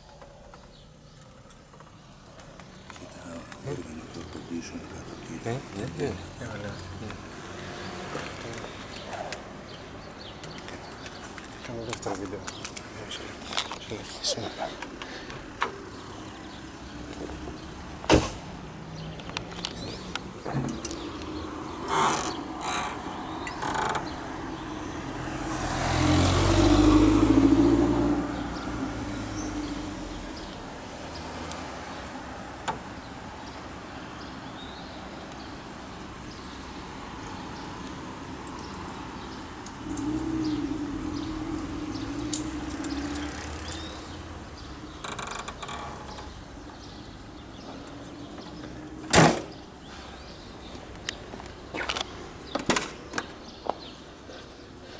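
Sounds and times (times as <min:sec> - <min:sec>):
vehicle rumble: 0:00.0 - 0:54.9
engine lid thump: 0:18.0 - 0:18.5, 0:49.1 - 0:49.6
vehicle engine passing: 0:21.0 - 0:30.4, 0:39.8 - 0:45.3.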